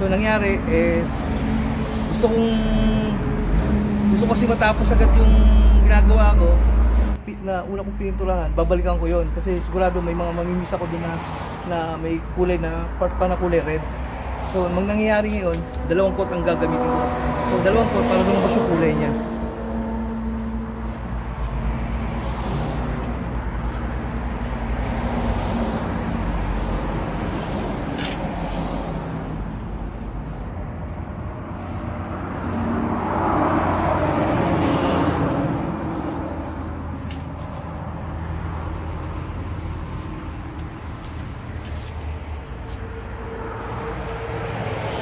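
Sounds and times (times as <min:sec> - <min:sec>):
vehicle engine humming: 0:00.0 - 0:45.0.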